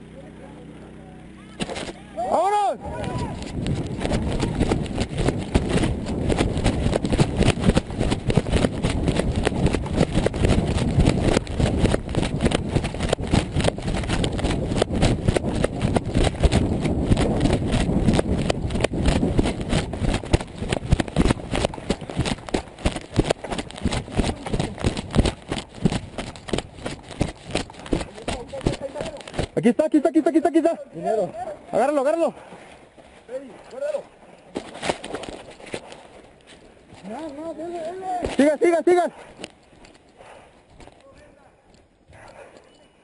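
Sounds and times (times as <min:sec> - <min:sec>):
heavy rumble: 0:02.8 - 0:29.6
running footfalls: 0:02.9 - 0:30.6, 0:32.2 - 0:41.4.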